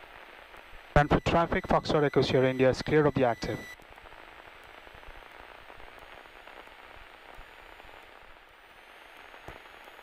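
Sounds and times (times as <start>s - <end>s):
faint high-pitched whine: 0.0s - 10.0s
faint intercom hiss: 0.9s - 4.4s.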